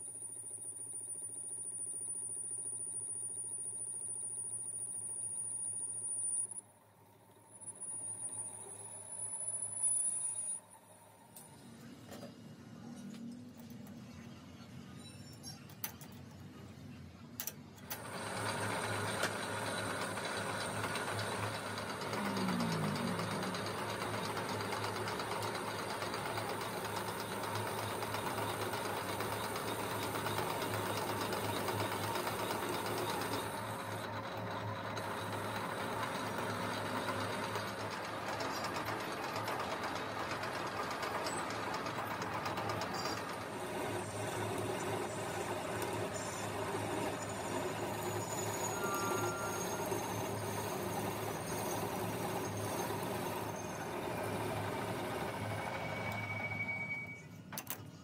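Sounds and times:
metal lathe humming: 18.0s - 57.2s.

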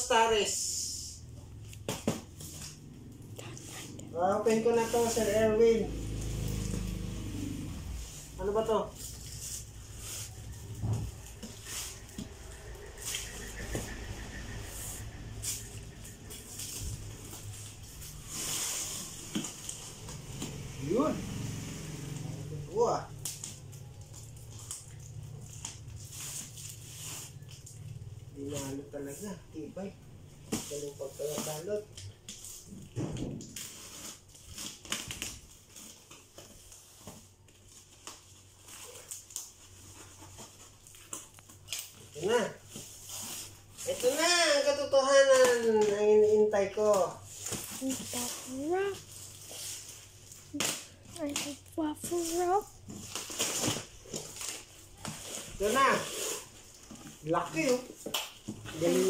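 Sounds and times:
plastic crinkling: 14.5s - 20.6s, 22.8s - 59.0s.

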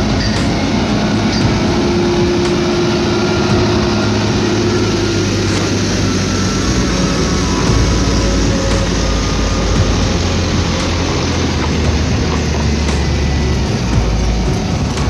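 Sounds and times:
diesel engines running: 0.0s - 15.0s
higher engine tone: 0.0s - 15.0s.

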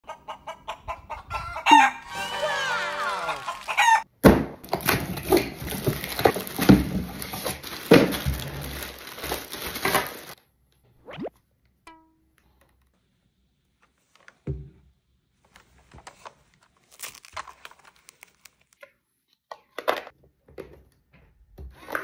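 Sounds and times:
toy chicken clucking: 0.0s - 4.1s
toy rooster crow: 1.1s - 4.1s
crackling and rustling: 4.7s - 10.4s, 15.4s - 18.8s.

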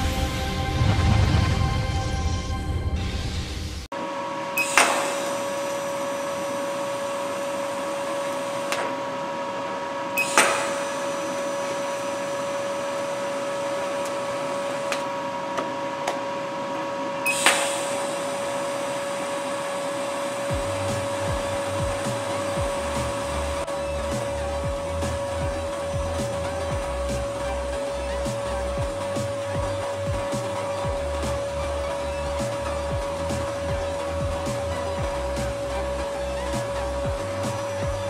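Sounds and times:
background music with bass line: 0.0s - 3.9s, 20.1s - 38.0s
welding arc hiss and buzz: 3.4s - 38.0s
arc strike crackle: 10.2s - 15.1s.

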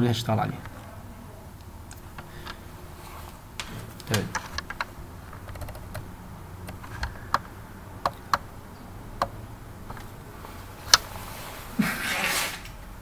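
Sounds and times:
keyboard and mouse clicks: 3.6s - 8.5s.

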